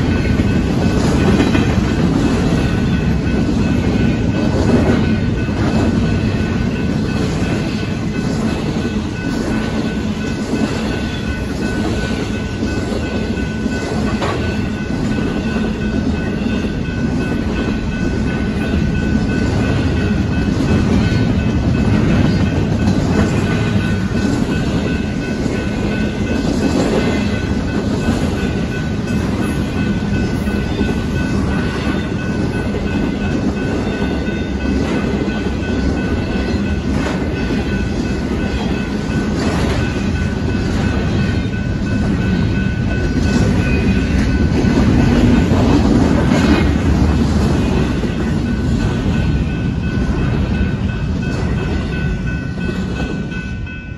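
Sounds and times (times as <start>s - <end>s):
train wheels clattering on rails: 0.0s - 53.9s.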